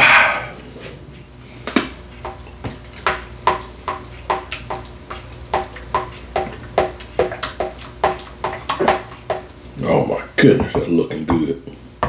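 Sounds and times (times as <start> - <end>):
utensil stirring thick sauce: 2.2 - 10.1
utensil knocking against pot: 5.5 - 9.5.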